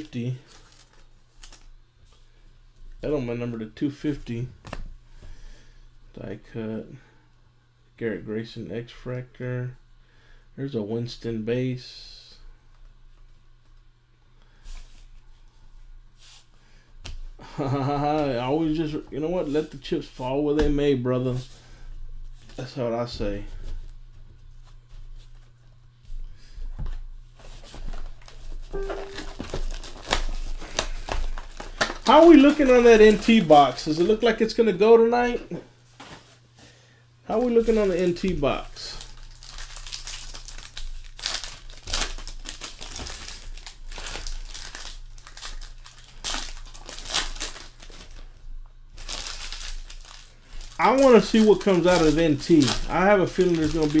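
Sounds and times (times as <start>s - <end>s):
foil wrappers crinkling: 0.0s - 1.8s, 27.4s - 34.7s, 37.3s - 54.0s
low electrical hum: 0.0s - 54.0s
cards rustling and clicking: 27.4s - 34.1s, 49.0s - 54.0s
short steady tone: 28.8s - 29.4s.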